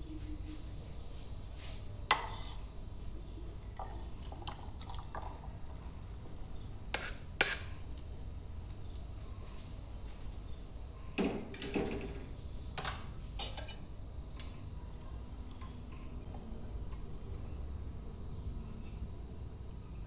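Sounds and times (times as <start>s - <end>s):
metal spoon scraping wok: 2.1s - 2.7s.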